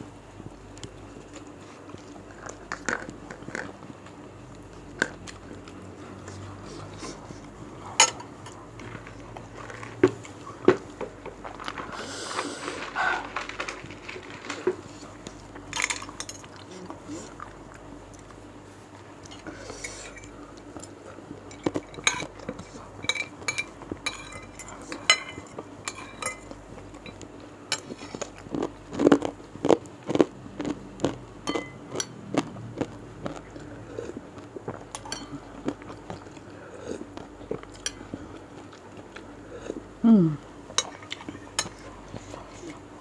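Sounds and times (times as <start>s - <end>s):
chewing: 0.8s - 39.9s, 40.8s - 42.9s
metal spoon clinking on bowl: 23.0s - 27.8s, 31.5s - 32.2s
person humming: 40.0s - 40.5s.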